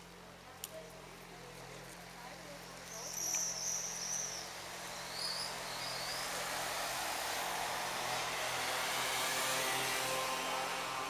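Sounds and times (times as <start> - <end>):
high bird chirps: 2.9 - 6.2.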